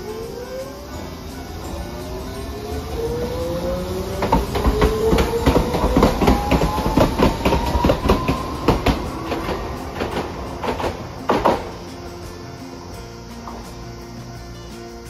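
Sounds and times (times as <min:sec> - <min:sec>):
tram motors whining: 0:00.0 - 0:15.0
wheels clattering on rails: 0:00.0 - 0:15.0.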